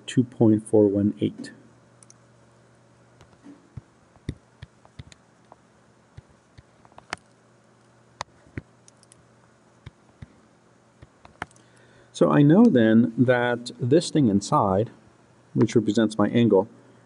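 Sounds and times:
faint steady hum: 0.0s - 17.0s
stylus tapping on tablet: 3.2s - 5.6s, 11.0s - 11.6s.

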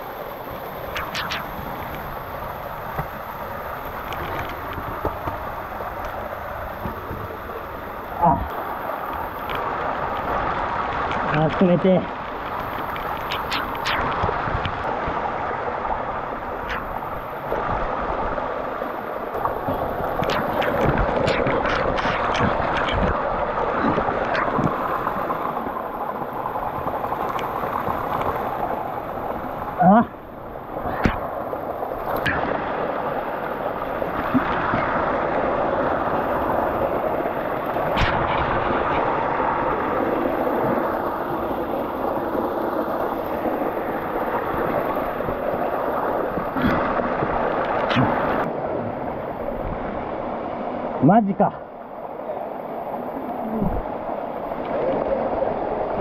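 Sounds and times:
waterfall rushing: 5.4s - 48.6s.

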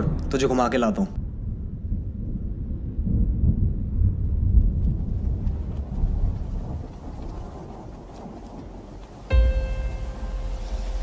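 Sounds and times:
low thunder-like rumble: 0.0s - 11.0s
music with held note: 9.3s - 11.0s.

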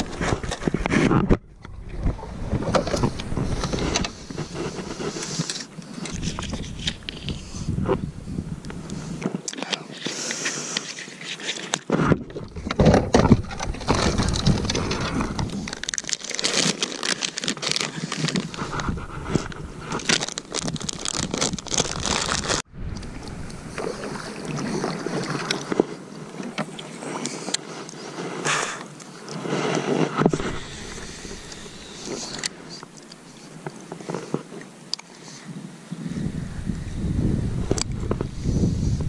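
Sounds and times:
plastic bottle being squeezed: 13.8s - 18.8s, 19.9s - 22.6s
plastic bag crinkling: 13.8s - 22.7s.

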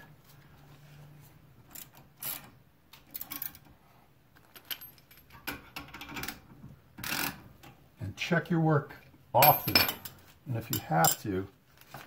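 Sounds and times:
metal tools clinking: 9.4s - 11.4s.

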